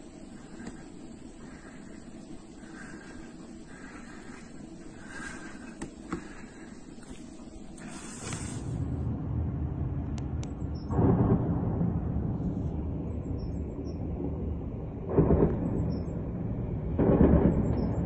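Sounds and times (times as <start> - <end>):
low rumble: 8.6 - 18.0
distant weapons fire: 16.9 - 18.0.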